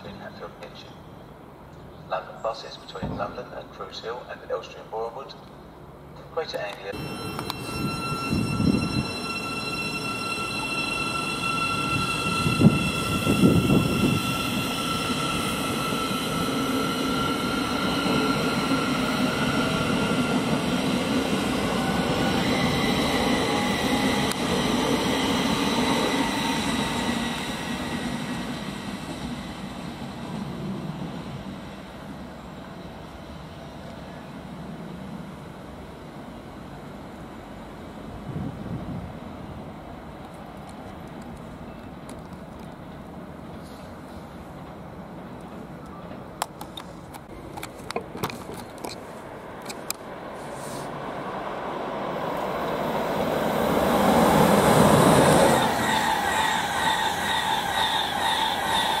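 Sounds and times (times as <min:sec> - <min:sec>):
train rolling rumble: 0:05.5 - 0:59.0
electric train motors whining: 0:07.0 - 0:20.8, 0:53.2 - 0:59.0.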